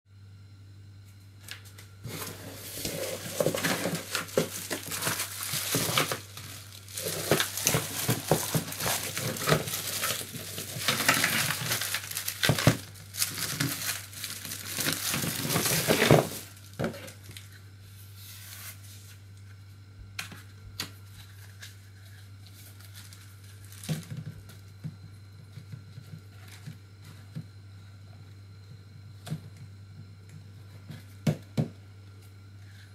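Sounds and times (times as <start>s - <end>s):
low steady hum: 0.1s - 32.9s
cardboard parcel being opened: 1.6s - 17.6s
plastic bag crinkling and tearing: 2.1s - 17.5s, 22.4s - 24.2s.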